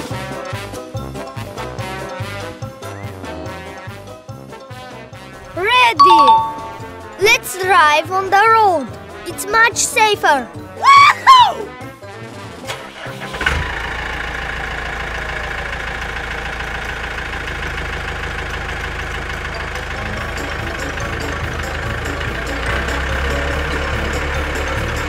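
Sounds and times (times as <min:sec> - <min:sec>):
tractor engine chugging: 0:13.4 - 0:25.0.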